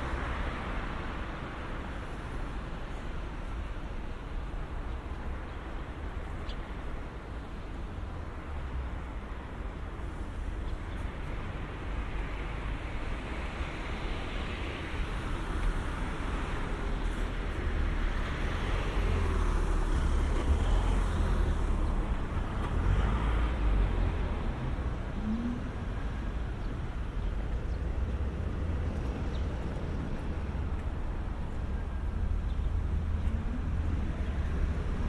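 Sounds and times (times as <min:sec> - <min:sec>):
cars driving past: 0:10.5 - 0:35.0.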